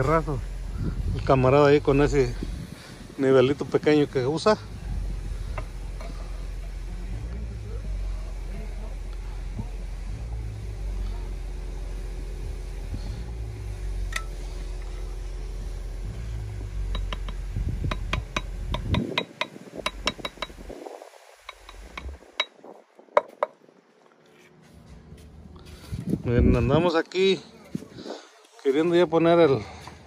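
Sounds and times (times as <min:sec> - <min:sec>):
low rumble: 0:00.0 - 0:22.9
hammer tapping concrete block: 0:16.9 - 0:20.6.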